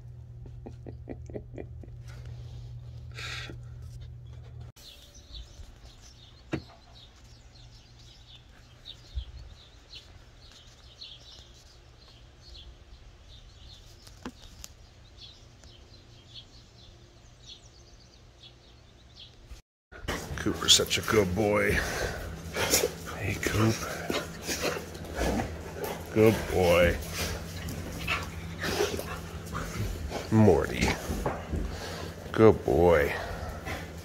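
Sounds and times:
steady low hum: 0.0s - 14.0s, 14.7s - 34.0s
birds chirping and singing: 4.2s - 19.6s, 20.6s - 34.0s.

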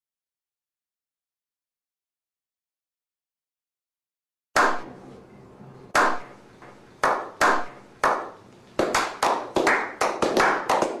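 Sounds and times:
hand claps: 4.6s - 4.9s, 6.0s - 11.0s.

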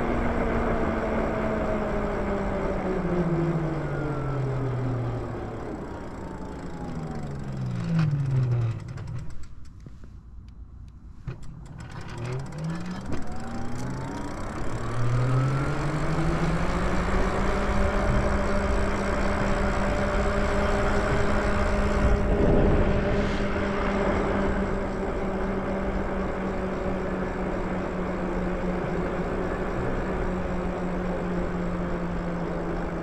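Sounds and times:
electric bike motor whining: 0.0s - 9.5s, 11.4s - 33.0s
steady rushing noise: 15.6s - 33.0s.

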